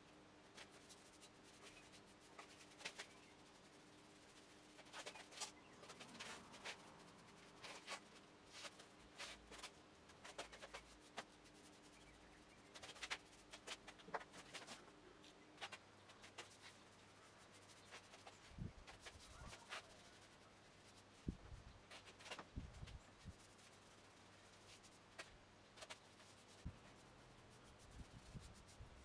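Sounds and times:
faint steady hum: 0.0s - 29.0s
paintbrush strokes on steel: 0.4s - 29.0s.

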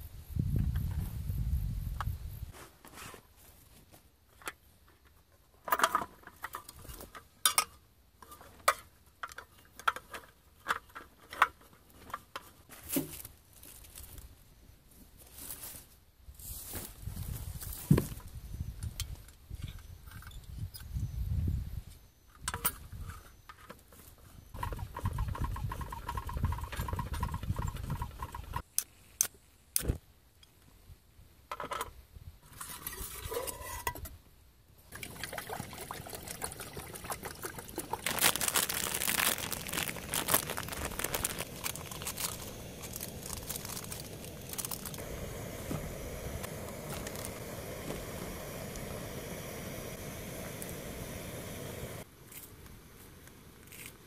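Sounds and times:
gas burner hissing: 38.1s - 54.0s.

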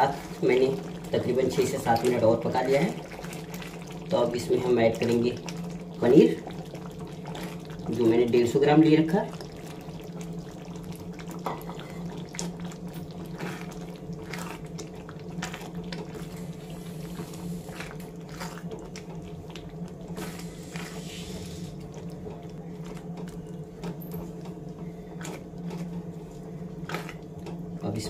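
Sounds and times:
spatula stirring thick gravy: 9.3s - 27.8s.

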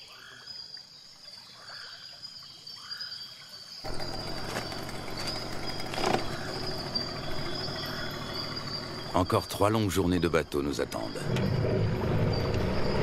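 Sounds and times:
noisy outdoor sound: 0.0s - 13.0s
high-pitched insect drone: 3.8s - 13.0s.

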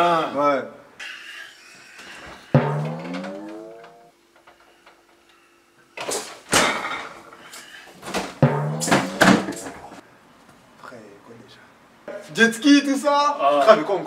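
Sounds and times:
door shutting with knock: 2.6s - 3.9s.

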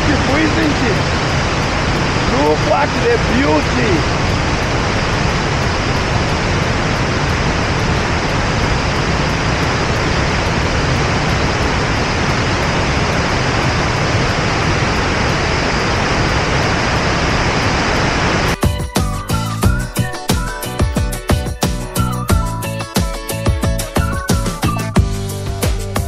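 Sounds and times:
river rapids rushing: 0.0s - 14.7s.

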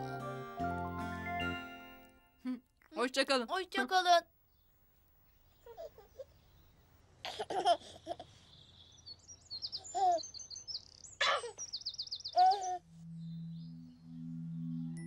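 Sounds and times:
baby giggling: 5.6s - 6.3s, 7.2s - 8.3s, 12.4s - 12.8s
birds chirping and trilling: 8.4s - 15.0s.

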